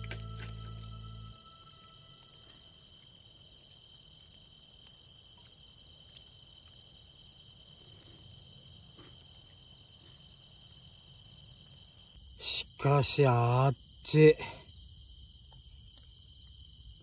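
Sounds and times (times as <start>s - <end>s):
insects chirring: 0.0s - 17.0s
faint ticks: 2.2s - 6.9s.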